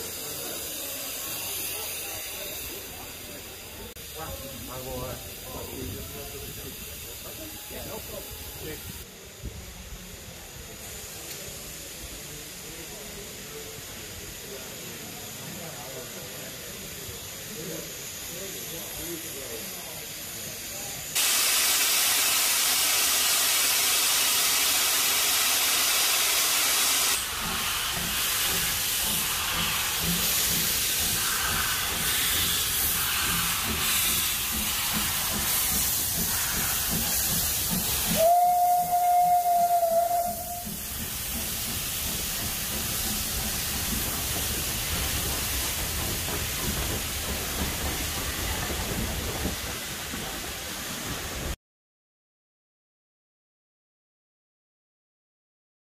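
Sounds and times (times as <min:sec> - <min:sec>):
steam hissing: 0:00.0 - 0:51.6
steam whistle blast: 0:38.0 - 0:40.8.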